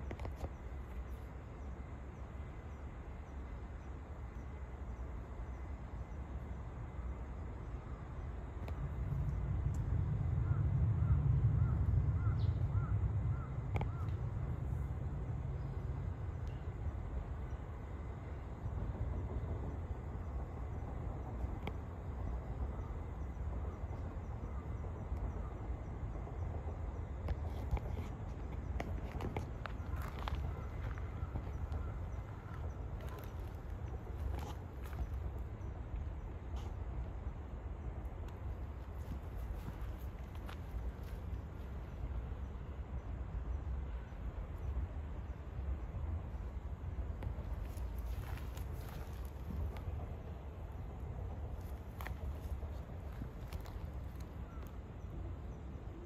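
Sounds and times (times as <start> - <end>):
steady low rumble: 0.0 - 56.0.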